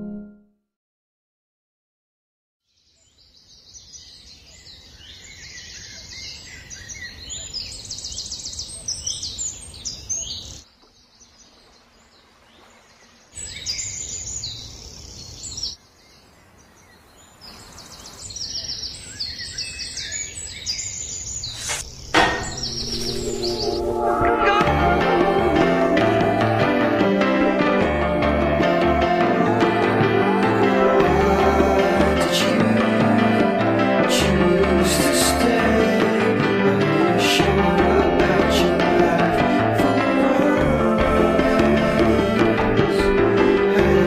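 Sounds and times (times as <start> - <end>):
small birds chirping: 2.6 - 24.6.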